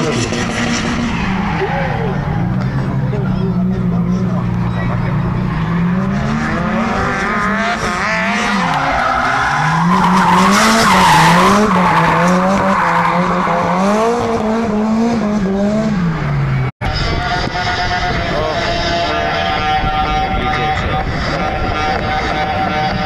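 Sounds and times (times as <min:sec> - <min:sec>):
tyres squealing and skidding: 0:00.0 - 0:14.8
car engine revving: 0:00.0 - 0:23.0.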